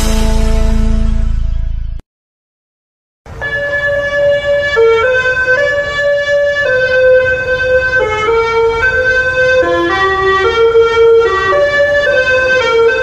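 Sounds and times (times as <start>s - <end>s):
electronic melody: 3.3s - 13.0s.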